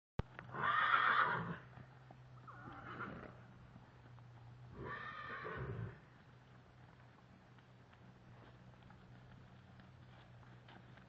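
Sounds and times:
horse whinnying: 0.5 - 1.7, 2.4 - 3.4, 4.7 - 6.0.

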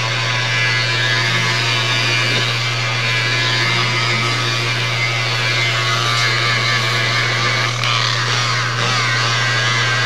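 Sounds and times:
low hum: 0.8 - 7.9.

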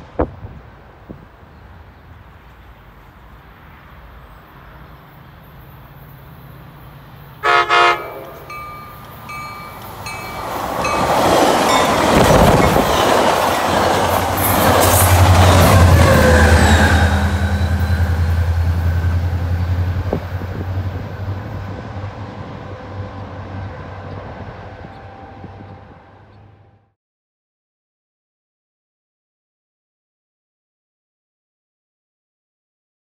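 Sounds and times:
train wheel and rail noise: 0.0 - 26.9
diesel locomotive drone: 0.0 - 27.0
train horn blasts: 7.4 - 9.0, 14.8 - 19.3, 24.0 - 26.9.

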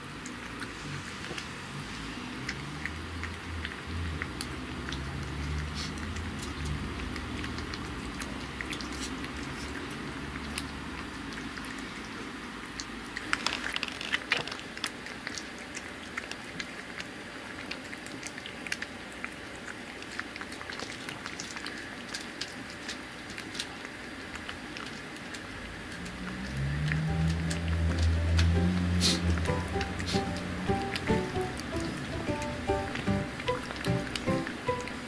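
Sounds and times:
cat licking and chewing: 0.0 - 35.0.

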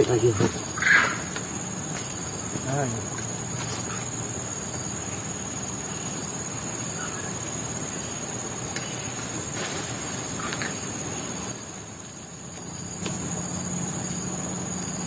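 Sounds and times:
insects buzzing: 0.0 - 15.0.

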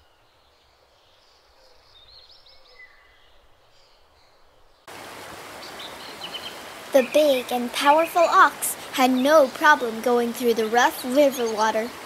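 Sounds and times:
birds chirping: 0.0 - 12.0
river water rushing: 4.9 - 12.0.

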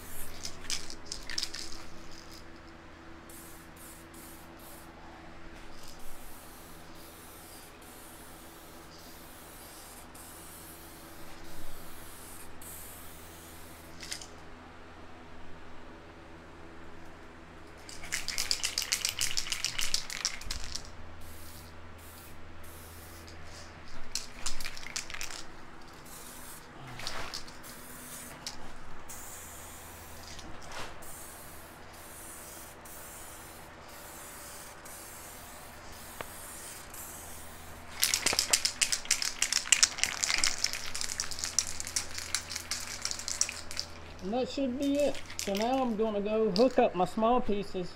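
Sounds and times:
aerosol paint can spraying: 5.7 - 14.3, 17.9 - 30.4, 31.0 - 46.8.

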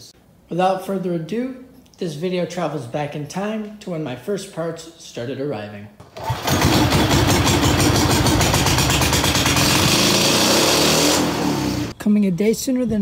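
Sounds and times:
small engine running hard: 6.2 - 11.9.

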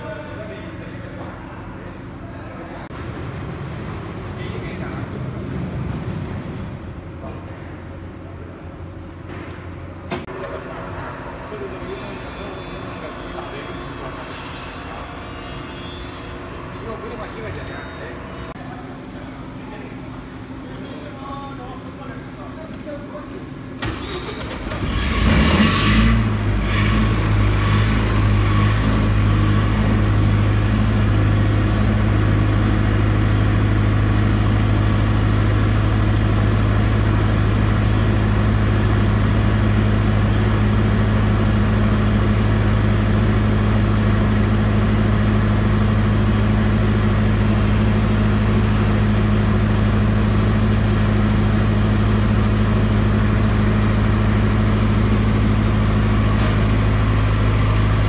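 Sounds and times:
diesel generator engine running: 23.2 - 58.0.

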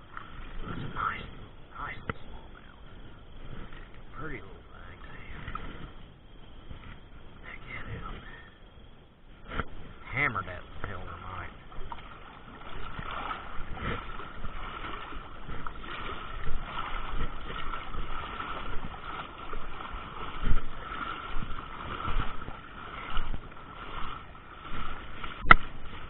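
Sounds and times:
water sloshing and splashing: 0.0 - 26.0.

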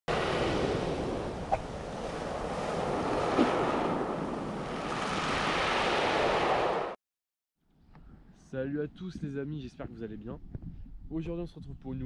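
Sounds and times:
surf over pebble beach: 0.1 - 6.9.

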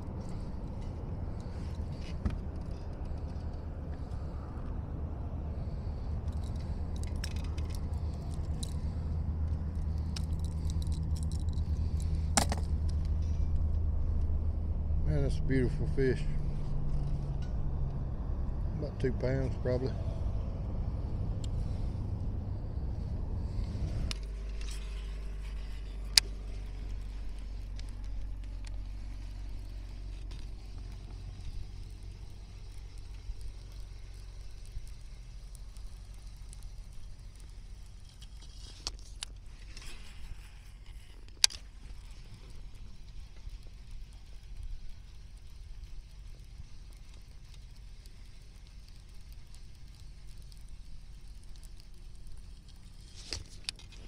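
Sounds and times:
steady low hum: 0.0 - 54.0
fishing tackle clicking and rattling: 6.0 - 13.8
faint ticks: 6.0 - 14.6, 23.6 - 54.0.

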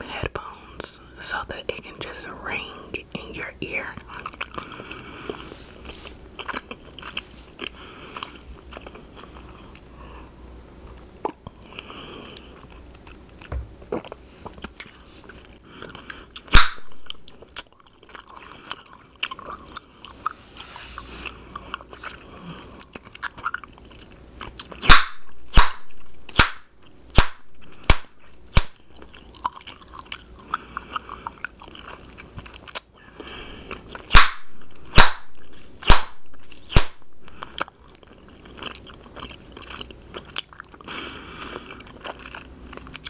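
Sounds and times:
gum chewing wet smacking: 3.9 - 9.9, 10.8 - 20.4, 21.0 - 43.0
bubble gum popping: 16.5 - 17.1, 24.8 - 28.8, 34.1 - 37.0.

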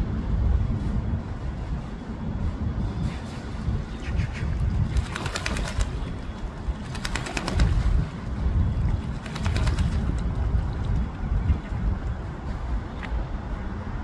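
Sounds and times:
low rumble: 0.0 - 5.1.

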